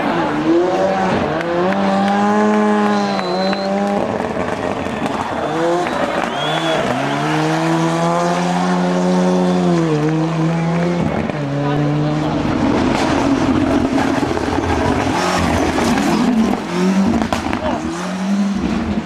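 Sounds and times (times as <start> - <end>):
rally car engine revving: 0.0 - 19.0
tyre squeal: 5.0 - 7.4.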